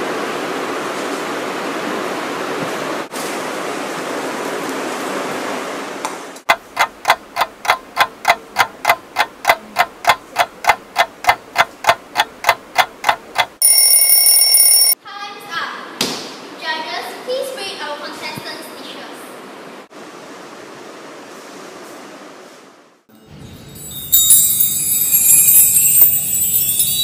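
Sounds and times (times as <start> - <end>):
clock ticking: 6.5 - 15.0
loud alarm ring: 13.6 - 15.0.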